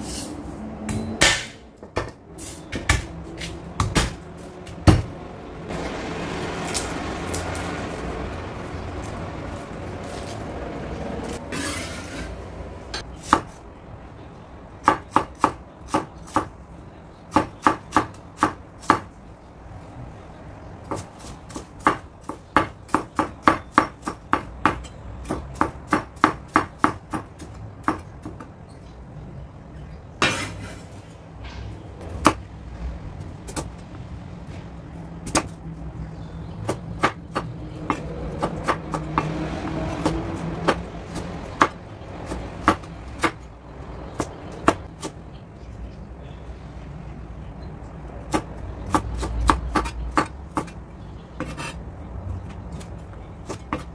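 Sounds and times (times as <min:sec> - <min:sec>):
cleaver chopping on wooden board: 0:00.9 - 0:04.2.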